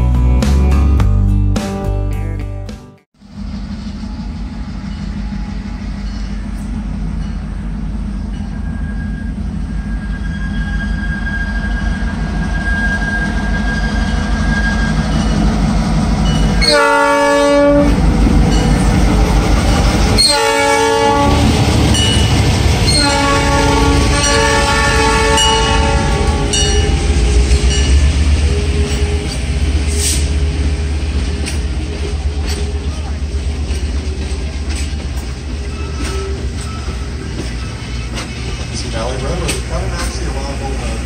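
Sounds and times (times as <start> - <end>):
diesel locomotive engine rumble: 3.2 - 41.0
train horn blasts: 16.6 - 18.0, 20.1 - 22.1, 22.8 - 27.8.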